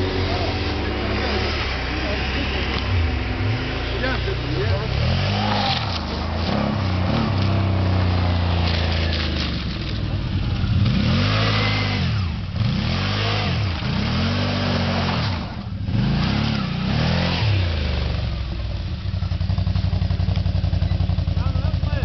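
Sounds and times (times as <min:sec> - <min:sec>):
quad bike engine revving: 0:00.0 - 0:22.0.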